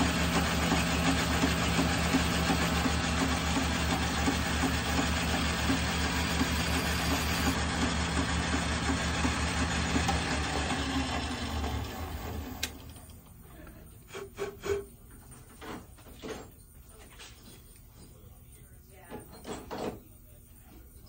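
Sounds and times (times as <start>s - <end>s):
metal lathe running: 0.0s - 12.9s.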